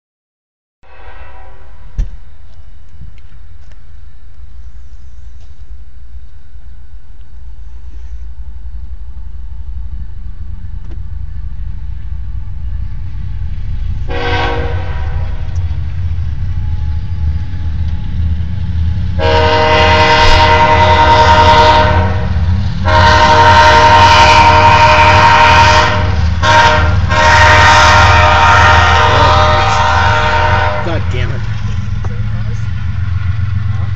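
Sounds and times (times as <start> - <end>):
locomotive air horn: 0.8 - 1.9, 14.1 - 15.6, 19.2 - 31.3
train rumble: 0.8 - 33.9.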